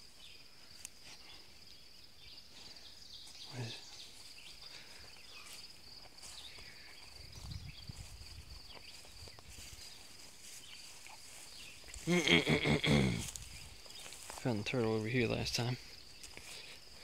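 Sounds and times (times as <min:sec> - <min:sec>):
insects trilling: 0:00.0 - 0:17.0
footsteps swishing through weeds: 0:07.4 - 0:12.1, 0:13.0 - 0:14.5.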